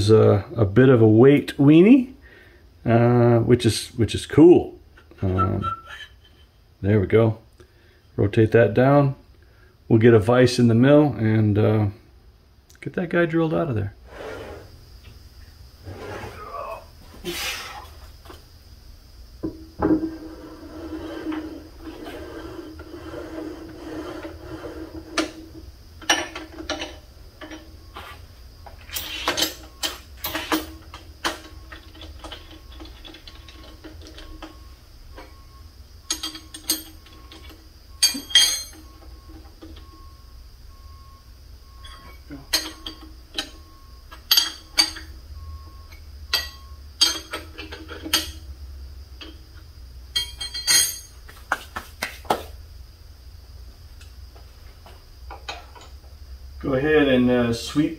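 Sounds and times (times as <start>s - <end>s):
metal vise clanking and scraping: 5.0s - 6.5s, 28.8s - 34.0s, 36.1s - 38.9s, 41.8s - 43.6s, 44.2s - 45.1s, 46.3s - 48.5s, 50.2s - 51.2s
wrench clinks: 36.1s - 38.9s, 44.3s - 45.1s, 46.3s - 48.4s, 50.1s - 51.2s.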